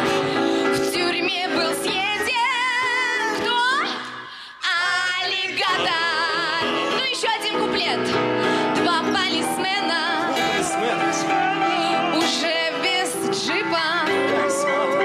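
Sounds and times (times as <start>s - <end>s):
woman singing with vibrato: 0.0s - 15.0s
instrumental accompaniment: 5.7s - 15.0s.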